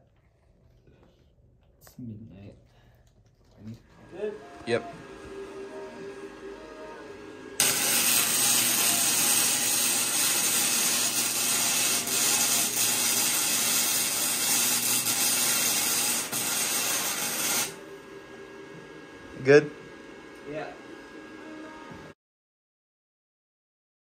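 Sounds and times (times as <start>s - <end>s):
electric arc welding crackle: 7.6s - 17.8s.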